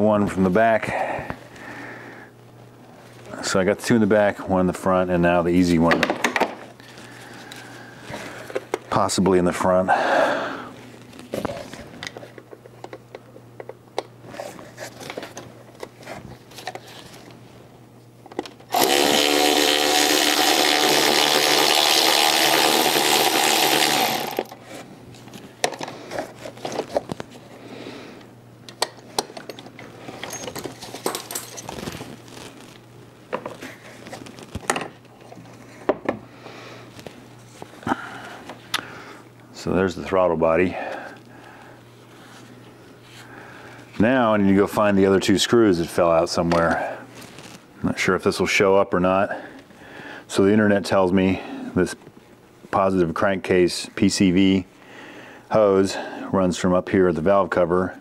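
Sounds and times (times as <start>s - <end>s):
small electric power tool: 18.7s - 24.6s
tools clicking and knocking: 28.7s - 31.7s.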